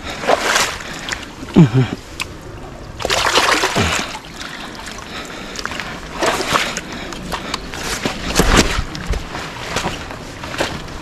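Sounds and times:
water splashing among rocks: 2.2s - 4.9s.

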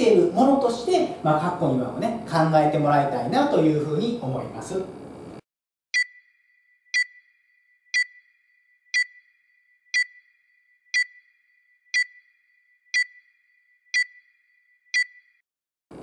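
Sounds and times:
short high beeps: 6.0s - 6.3s, 7.0s - 15.4s.

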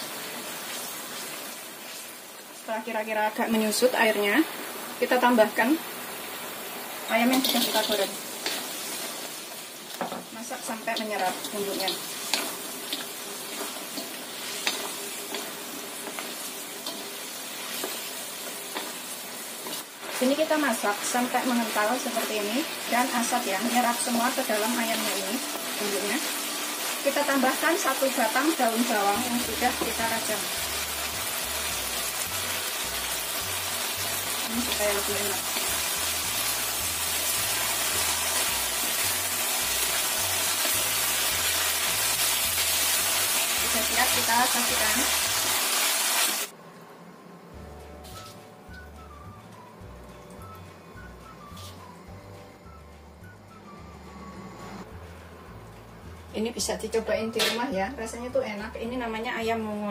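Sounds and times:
chicken sizzling in sauce: 0.0s - 46.6s.

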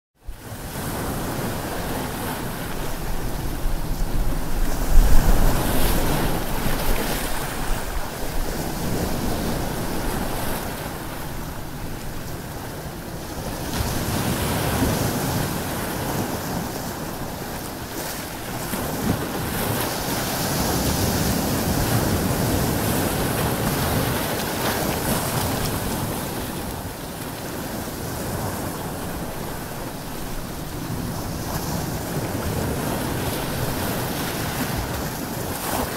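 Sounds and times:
ocean surf washing on beach: 0.2s - 35.9s
wind: 0.2s - 35.9s.

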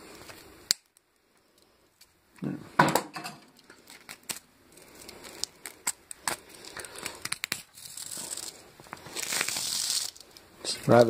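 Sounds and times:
plastic crinkling and tearing: 3.6s - 11.0s.

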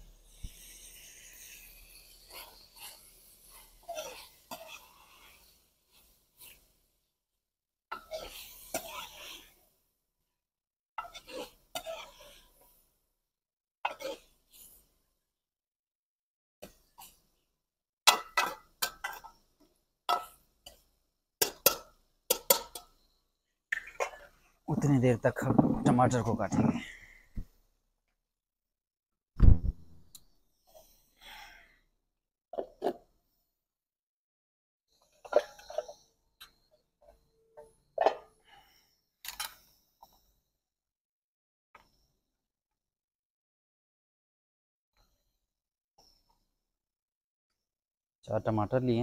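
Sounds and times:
metal ladle scraping a pot: 24.7s - 27.0s.

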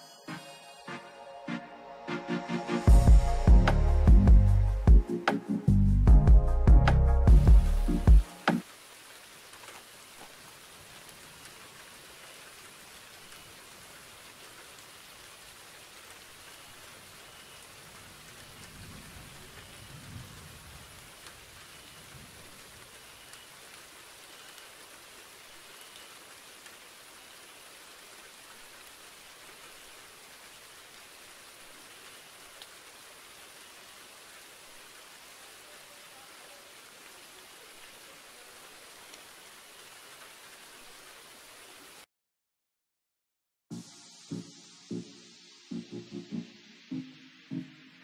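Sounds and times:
faint steady rain: 0.0s - 42.1s, 43.7s - 48.0s.

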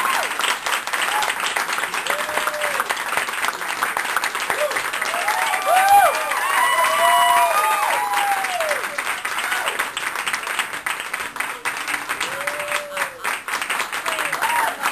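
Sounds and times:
audience applauding: 0.0s - 14.9s
high whoops: 2.0s - 2.9s, 4.5s - 9.9s, 12.2s - 13.3s, 14.2s - 14.9s.

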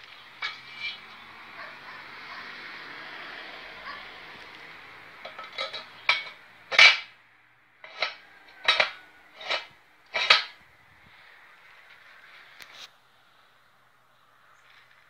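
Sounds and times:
steel bracket clanking on rails: 0.4s - 1.1s, 5.2s - 7.1s, 7.8s - 10.6s.

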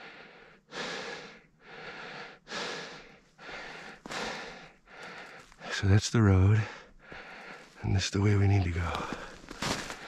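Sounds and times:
person panting heavily: 0.0s - 5.7s, 6.6s - 7.8s.

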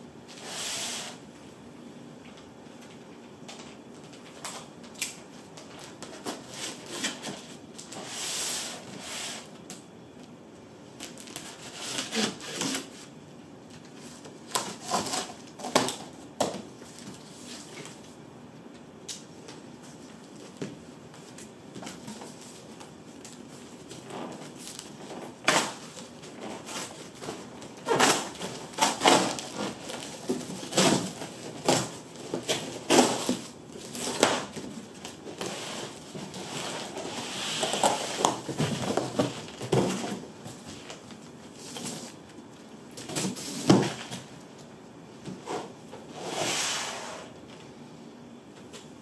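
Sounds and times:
cardboard scraping and rubbing: 11.2s - 13.1s, 23.9s - 40.9s.

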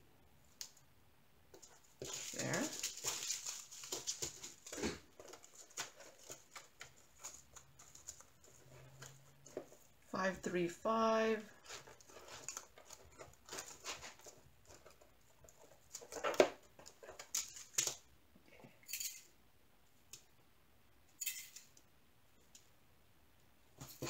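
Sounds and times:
plastic bags rustling and clicking: 1.5s - 10.0s, 11.5s - 18.1s.

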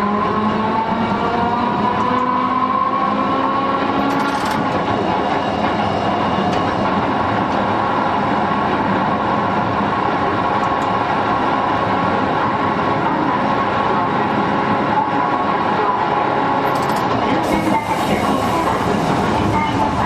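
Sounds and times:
wheels rumbling on rails: 0.0s - 20.0s.

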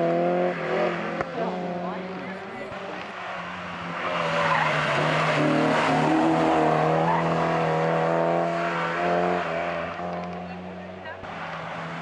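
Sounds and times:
car engine revving hard: 0.0s - 12.0s
tyres squealing: 3.1s - 7.8s.

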